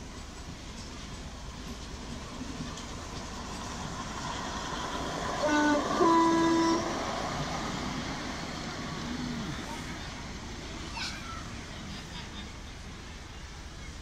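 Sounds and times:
train wheels rumbling on track: 0.0s - 14.0s
model train horn: 5.4s - 7.0s.

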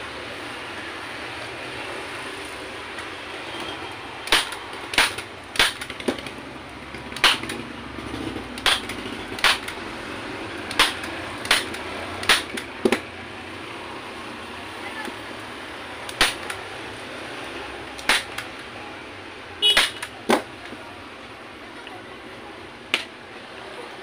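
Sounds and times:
staple gun snapping: 4.3s - 6.3s, 7.2s - 7.6s, 8.6s - 9.8s, 10.7s - 13.0s, 18.0s - 18.6s.

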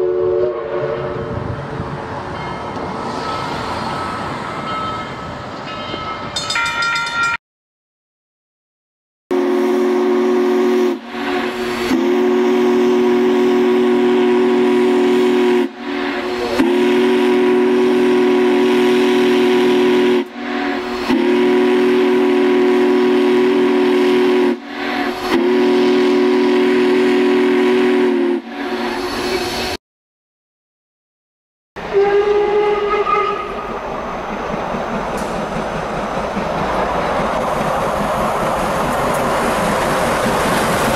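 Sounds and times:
steam whistle chord: 0.0s - 1.4s, 9.3s - 29.6s, 31.8s - 33.6s
steam hissing: 10.7s - 29.8s.

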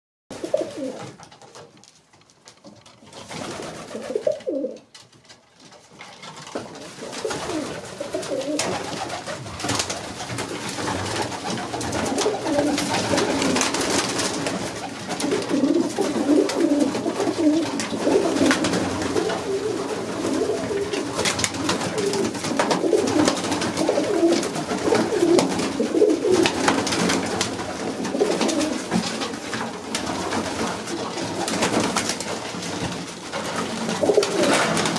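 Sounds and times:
pigeons cooing: 0.4s - 1.1s, 3.8s - 4.8s, 6.8s - 29.5s, 33.8s - 34.9s.

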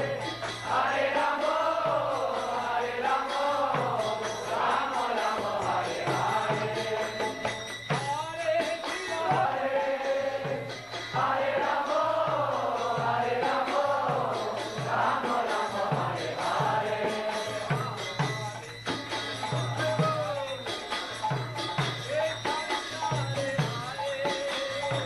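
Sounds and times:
group of voices chanting: 0.0s - 7.0s
hand cymbals clinking: 0.0s - 12.8s, 13.5s - 25.0s
drum beating: 0.0s - 25.0s.

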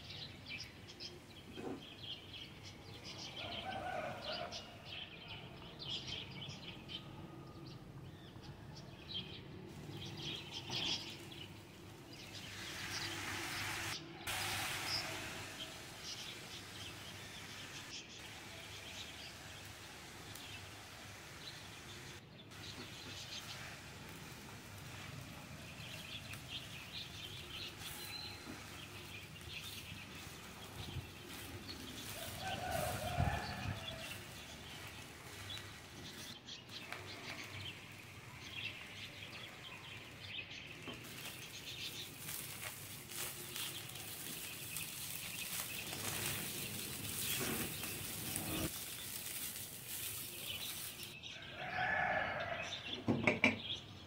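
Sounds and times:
spatula scraping rice in pan: 40.8s - 51.2s.

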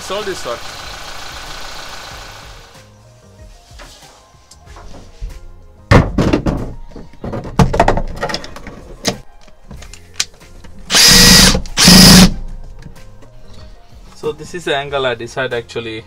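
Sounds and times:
power drill running: 10.9s - 12.3s.

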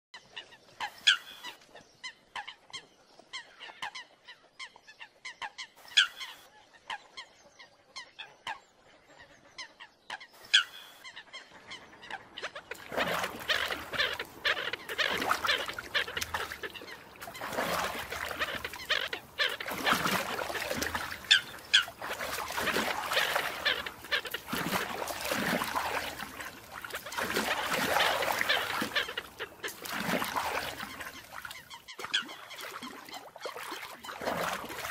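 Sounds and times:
coots honking calls: 10.5s - 32.7s.

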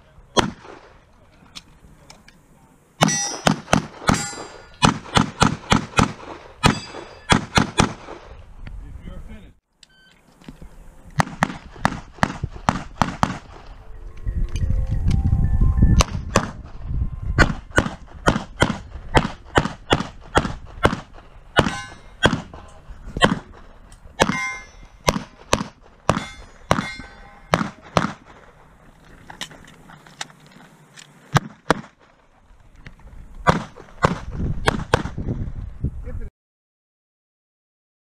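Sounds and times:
pistol shots: 0.3s - 0.9s, 3.0s - 8.3s, 11.2s - 13.7s, 17.4s - 28.5s, 33.4s - 35.2s.

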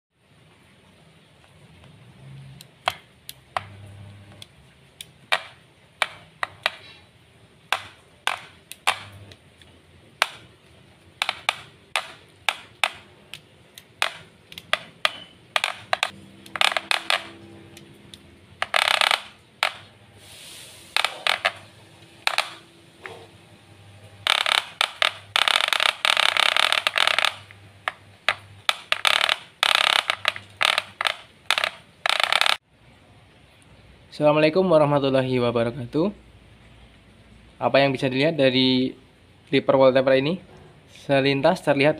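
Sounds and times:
hair clipper clicking when handled: 22.2s - 23.2s, 24.2s - 32.6s.

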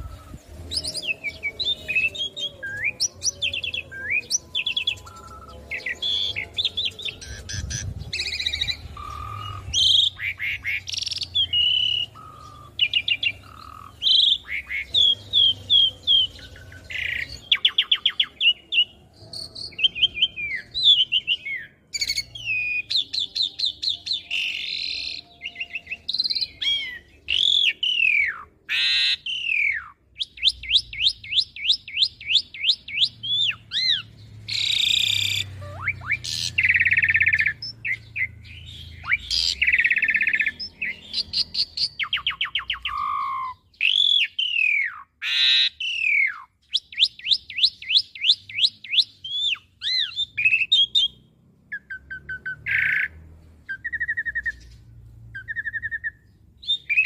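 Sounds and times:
starling singing: 0.0s - 57.0s.

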